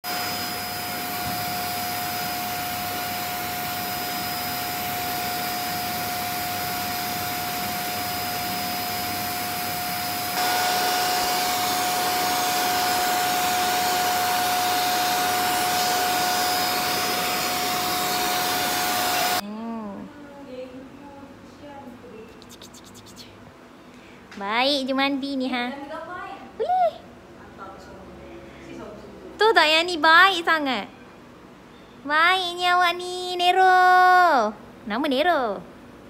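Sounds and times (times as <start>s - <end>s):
blow dryer whining: 0.0s - 19.4s.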